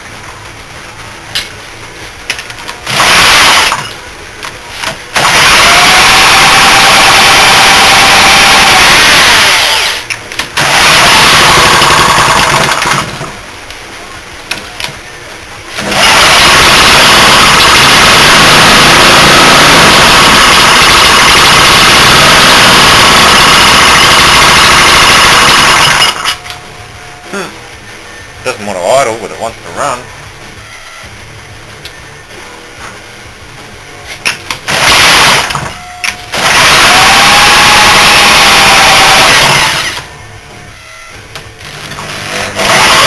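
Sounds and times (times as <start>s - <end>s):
small engine running: 2.8s - 4.0s, 5.1s - 10.0s, 10.6s - 13.4s, 15.8s - 26.3s, 34.7s - 35.7s, 36.3s - 40.1s, 41.9s - 43.0s.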